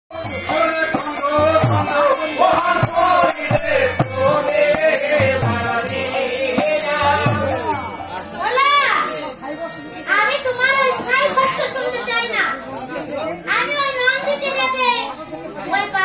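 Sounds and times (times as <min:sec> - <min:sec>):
hand drum beat: 0:00.1 - 0:08.1
harmonium: 0:00.1 - 0:16.0.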